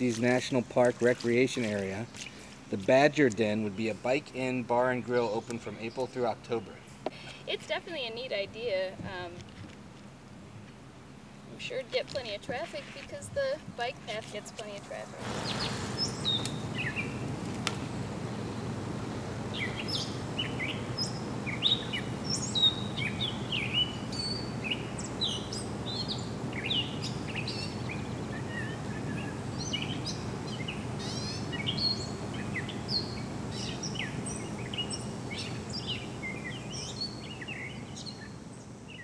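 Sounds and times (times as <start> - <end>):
songbirds chirping and whistling: 0.2 - 2.6, 5.0 - 7.6, 12.1 - 39.0.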